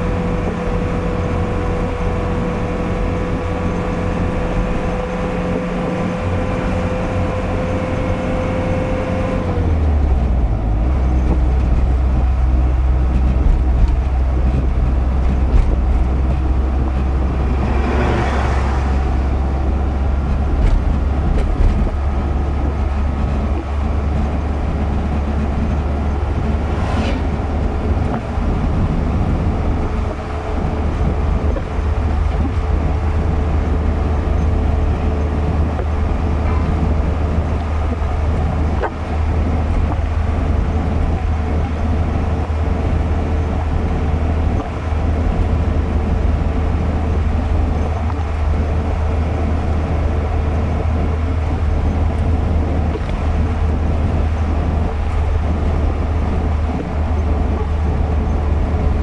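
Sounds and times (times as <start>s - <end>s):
car engine and road rumble: 0.0s - 59.0s
passing vehicle rushing: 14.1s - 40.6s.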